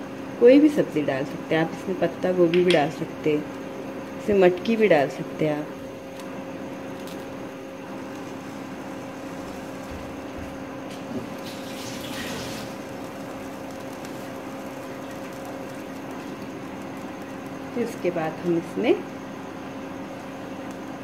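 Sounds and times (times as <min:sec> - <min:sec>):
low steady hum: 0:00.0 - 0:21.0
batter sizzling in a pan: 0:10.9 - 0:19.2.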